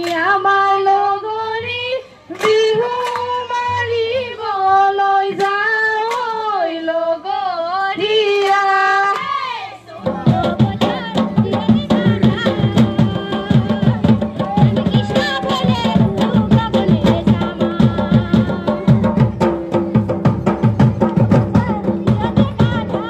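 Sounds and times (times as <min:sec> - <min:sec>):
hand drum fast rhythm: 0:10.0 - 0:23.0.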